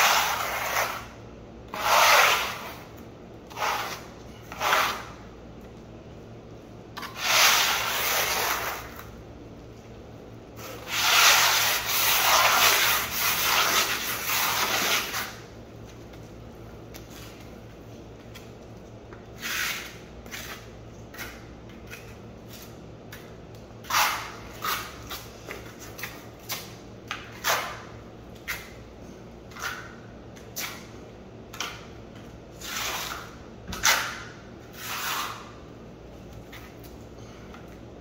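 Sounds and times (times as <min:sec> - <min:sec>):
steel trowel scraping cement: 0:00.0 - 0:02.8, 0:03.5 - 0:05.2, 0:07.0 - 0:09.0, 0:10.6 - 0:15.4.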